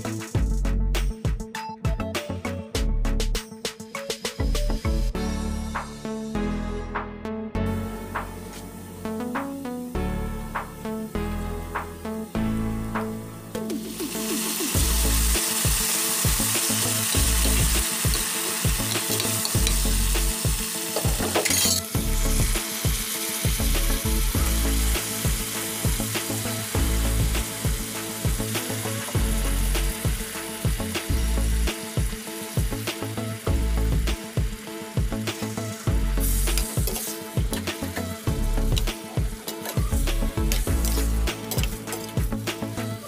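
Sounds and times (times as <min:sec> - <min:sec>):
sharp burst of sizzle: 0:13.6 - 0:42.8
onions and garlic sizzling in oil: 0:13.6 - 0:43.0.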